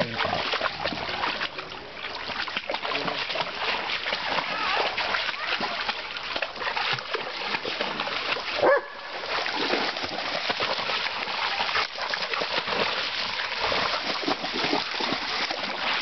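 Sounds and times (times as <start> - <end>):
dogs splashing through water: 0.0 - 16.0
dog barking: 8.6 - 9.0.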